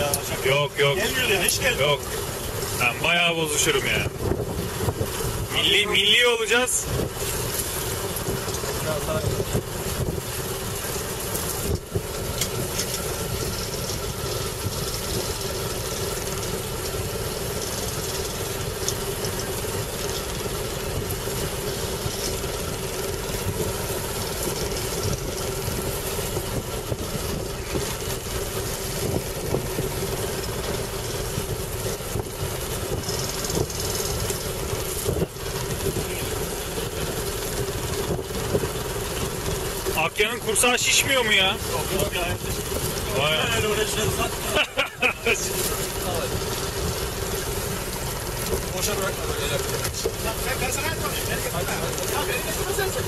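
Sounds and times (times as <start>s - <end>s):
boat engine humming: 0.0s - 53.0s.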